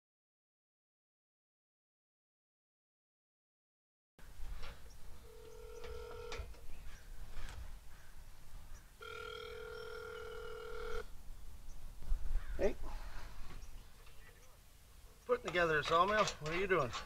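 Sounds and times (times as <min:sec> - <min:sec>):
phone ringing tones: 0:05.2 - 0:06.6, 0:09.0 - 0:11.1.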